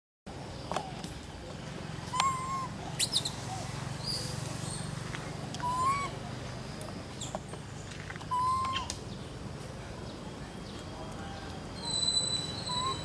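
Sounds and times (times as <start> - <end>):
small birds chirping: 0.4 - 13.0
baby macaque coo calls: 2.1 - 3.4, 5.6 - 6.2, 8.3 - 8.9, 11.8 - 13.0.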